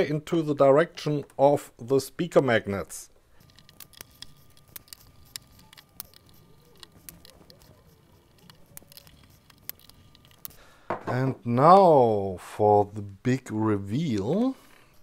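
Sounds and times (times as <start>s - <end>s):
screwdriver and screws clicking: 3.4s - 10.7s.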